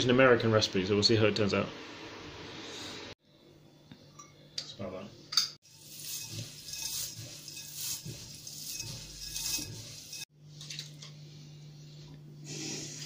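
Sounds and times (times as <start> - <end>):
hands stirring dry oats in bowl: 5.6 - 11.0.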